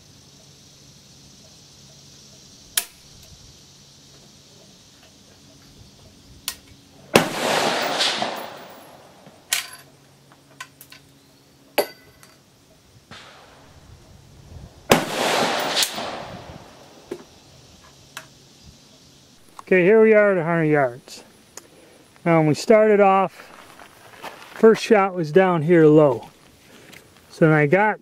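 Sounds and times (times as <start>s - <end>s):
rifle shots ringing: 7.1s - 9.2s, 14.9s - 16.8s.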